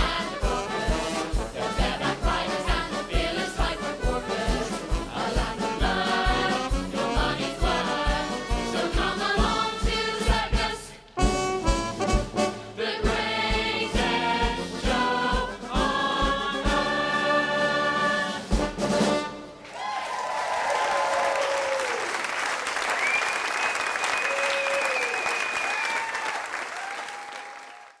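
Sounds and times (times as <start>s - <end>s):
stage band with brass and choir: 0.0s - 19.9s
audience applauding and cheering: 19.6s - 28.0s.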